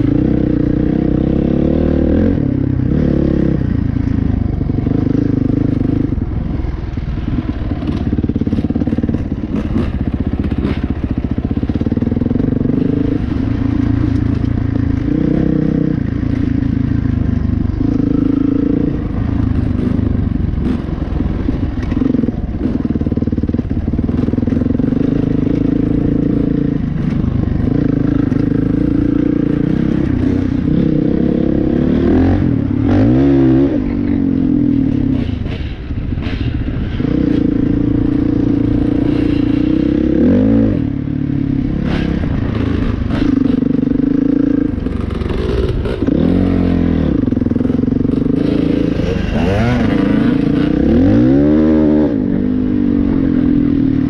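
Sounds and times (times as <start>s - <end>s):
dirt bike engine revving: 7.2s - 54.0s
bike knocks and rattles: 7.4s - 12.3s.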